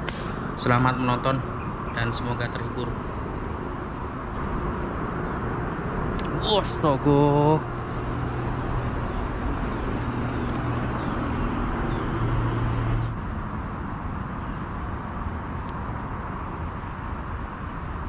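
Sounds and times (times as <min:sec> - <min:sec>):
low motor hum: 0:00.0 - 0:13.2.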